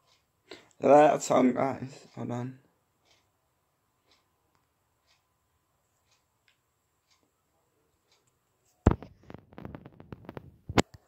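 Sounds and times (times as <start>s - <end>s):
smartphone handling noise: 8.9s - 11.0s.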